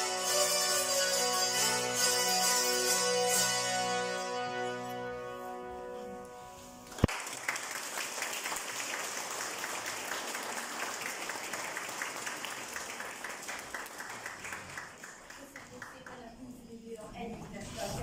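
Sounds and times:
zither ensemble chord: 0:00.0 - 0:07.0
audience applause: 0:06.9 - 0:16.2.

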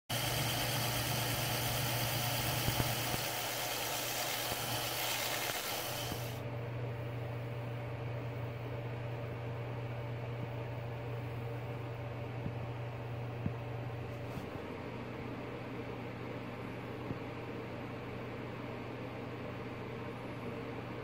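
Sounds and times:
lathe motor humming: 0:00.1 - 0:06.4
abrasive pad sanding hiss: 0:00.2 - 0:06.4.

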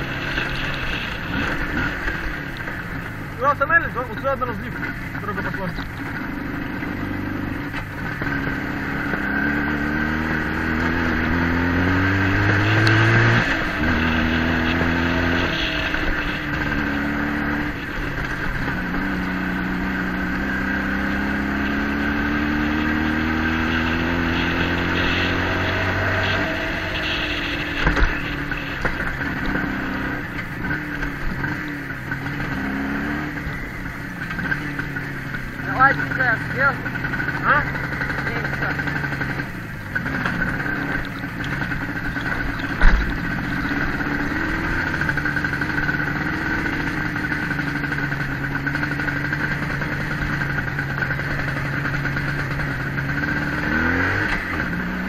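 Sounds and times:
vehicle engine pulling under load: 0:00.0 - 0:55.0.

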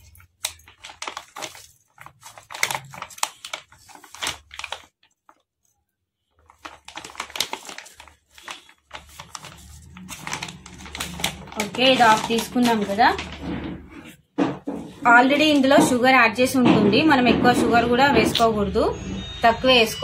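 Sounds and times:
plastic packet crinkling: 0:00.0 - 0:05.7, 0:06.3 - 0:14.0.

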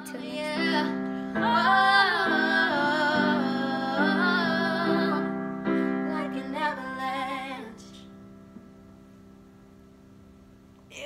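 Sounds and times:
women singing with vibrato: 0:00.0 - 0:08.1
piano accompaniment: 0:00.0 - 0:10.2.

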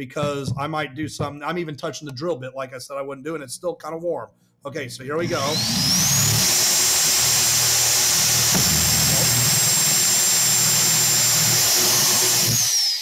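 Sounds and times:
drill bit cutting plastic: 0:05.2 - 0:13.0
electric drill motor whine: 0:05.2 - 0:13.0.

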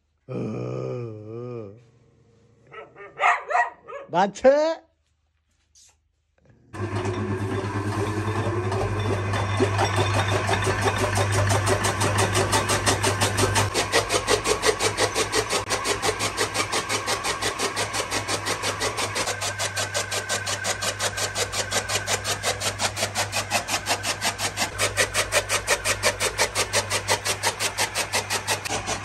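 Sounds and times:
electric motor hum: 0:06.7 - 0:29.0
chaff cutter knives chopping: 0:07.9 - 0:29.0.

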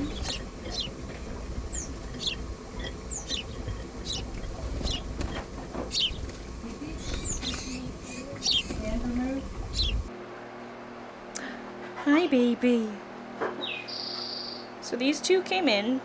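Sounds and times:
young sparrows chirping: 0:00.0 - 0:10.1, 0:13.6 - 0:14.7.

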